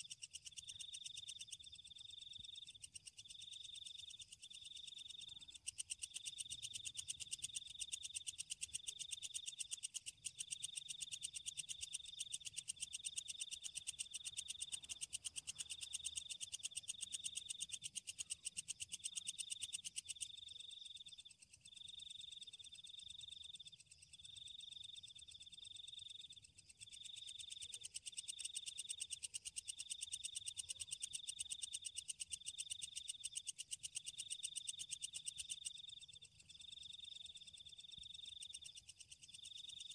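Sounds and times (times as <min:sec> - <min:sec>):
insects trilling: 0:00.0 - 0:39.9.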